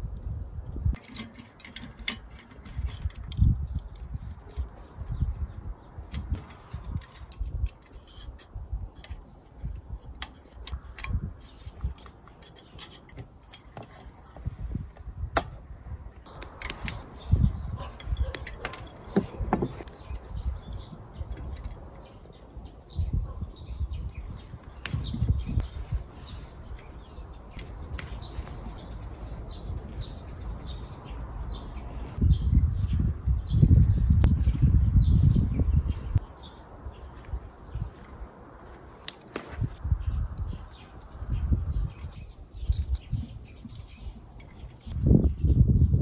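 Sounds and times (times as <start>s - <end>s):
hands handling metal parts: 1.0s - 4.8s, 6.1s - 14.5s, 16.2s - 17.2s, 17.8s - 20.2s
pliers on wires: 6.0s - 14.5s, 16.3s - 17.1s, 17.8s - 20.0s
bird chirps: 16.8s - 38.0s.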